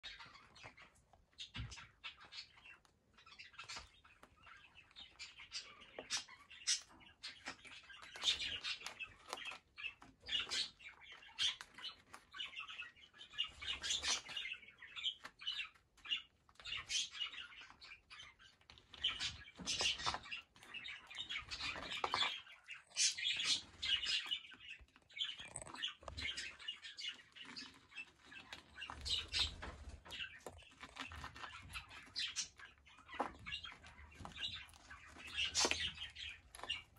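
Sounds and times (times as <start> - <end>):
birds scratching in sand: 18.9 - 36.9.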